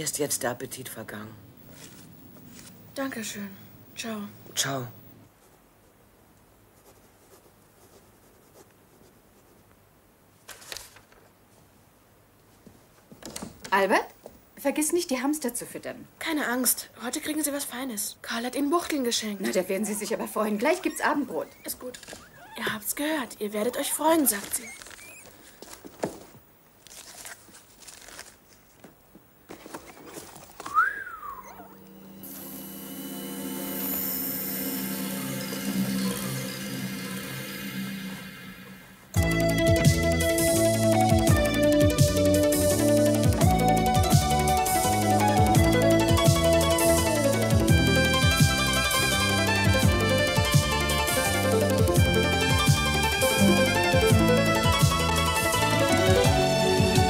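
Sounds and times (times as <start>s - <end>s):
paper rustle: 1.7s - 2.8s, 10.4s - 11.7s, 21.6s - 22.8s, 23.6s - 30.8s
pen scratching on paper: 6.7s - 9.6s.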